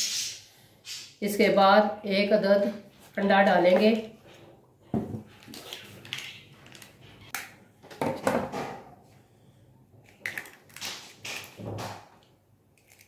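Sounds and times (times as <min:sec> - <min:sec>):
eggshell cracking: 0:10.1 - 0:11.6, 0:12.8 - 0:13.0.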